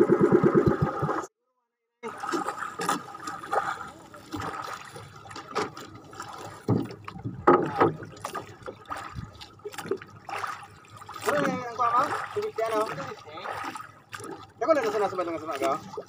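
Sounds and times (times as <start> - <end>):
water lapping against boat hull: 2.0 - 16.0
knocks on wooden boat: 6.6 - 8.1.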